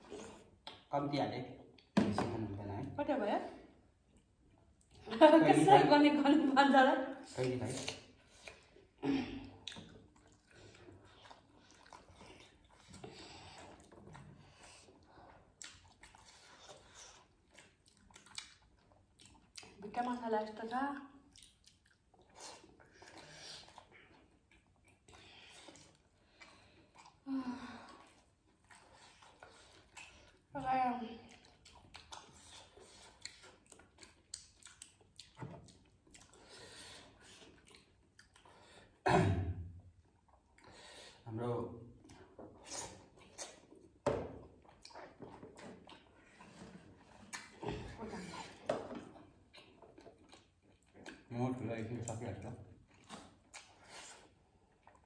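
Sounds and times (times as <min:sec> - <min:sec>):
chewing: 0:00.0 - 0:00.9, 0:07.1 - 0:39.0, 0:39.8 - 0:41.2, 0:41.9 - 0:55.0
wet squishing of food torn apart: 0:09.5 - 0:19.9, 0:31.2 - 0:38.8.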